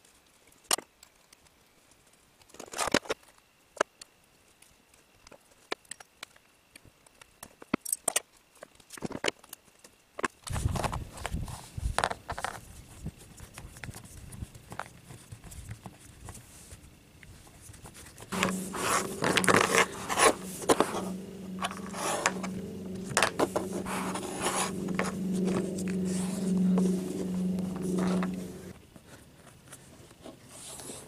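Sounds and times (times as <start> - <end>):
steady low hum: 18.3 - 28.8.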